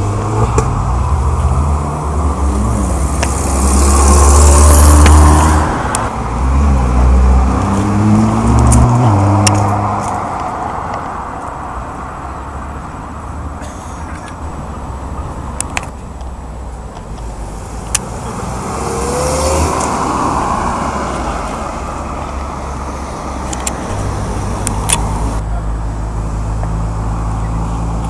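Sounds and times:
car accelerating past: 0:00.0 - 0:10.7, 0:18.1 - 0:25.4.

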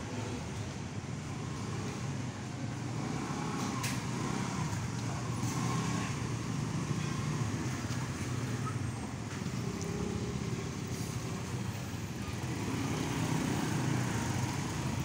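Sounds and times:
street traffic hum: 0:00.0 - 0:15.0.

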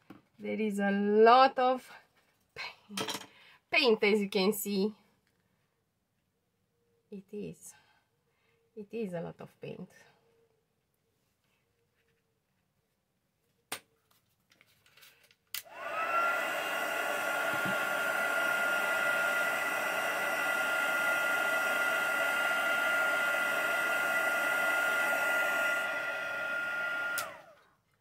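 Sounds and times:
blow dryer motor whine: 0:15.6 - 0:27.6.

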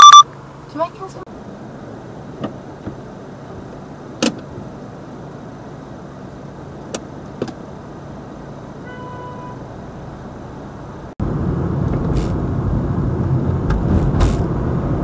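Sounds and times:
clicks and knocks in car cabin: 0:02.4 - 0:03.0, 0:04.2 - 0:04.7, 0:06.9 - 0:07.6.

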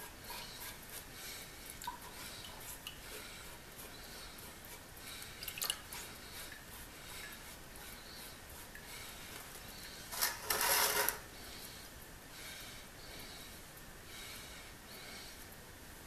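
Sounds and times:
water running into bucket: 0:05.4 - 0:06.0.

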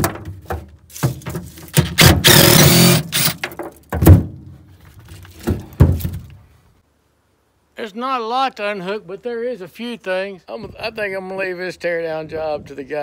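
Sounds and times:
impact driver hammering: 0:01.8 - 0:03.4.

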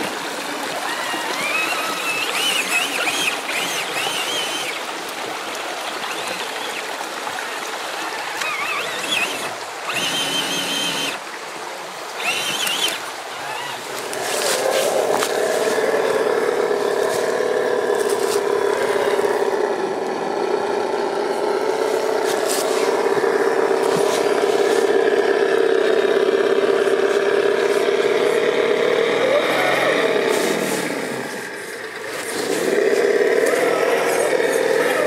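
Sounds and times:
electric motor and gearbox whining: 0:00.8 - 0:07.1, 0:07.8 - 0:11.2, 0:12.0 - 0:35.0
dry leaves crackling: 0:12.2 - 0:18.9.

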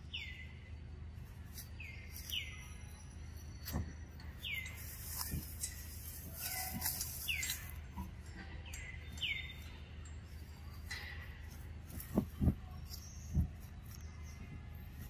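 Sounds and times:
low steady hum: 0:00.0 - 0:15.0
short dull thumps: 0:10.9 - 0:14.8.

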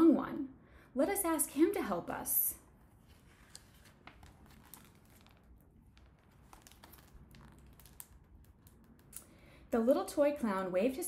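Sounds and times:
paper page turning: 0:02.9 - 0:09.2.

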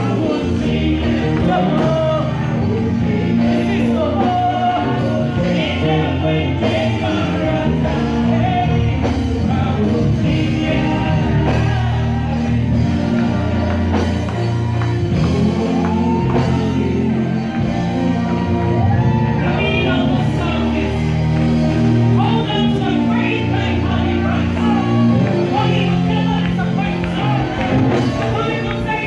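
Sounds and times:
women singing gospel: 0:00.0 - 0:21.4
backing singers: 0:00.0 - 0:29.0
bass: 0:00.0 - 0:29.0
keyboard chords: 0:00.0 - 0:29.0.

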